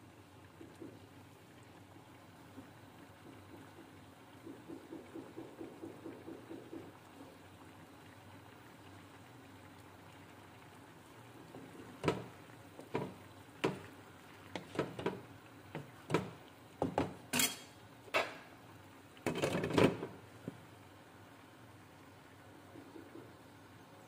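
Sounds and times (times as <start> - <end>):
glass lid clattering on pan: 17.3 - 18.4.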